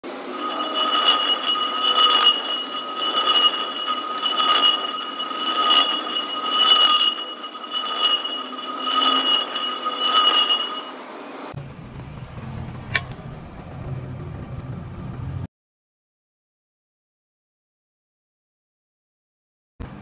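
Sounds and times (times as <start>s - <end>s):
metal wheel scraping on concrete: 0.1s - 11.0s, 12.8s - 13.2s.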